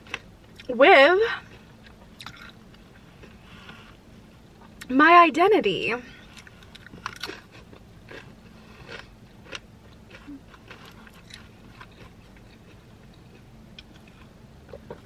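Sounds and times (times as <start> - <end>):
person chewing chip crunches: 1.6 - 3.8, 6.3 - 15.0.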